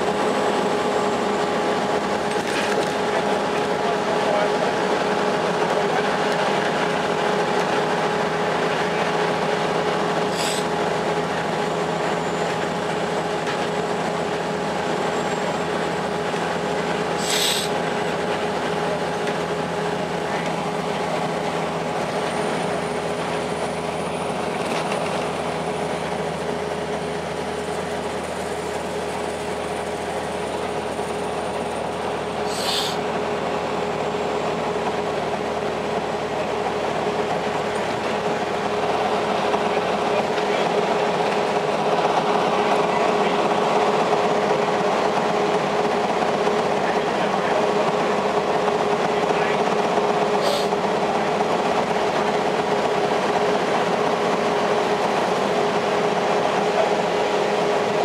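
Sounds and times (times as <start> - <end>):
bus interior engine drone: 0.0 - 58.0
brief hisses: 17.2 - 17.7, 32.5 - 33.0.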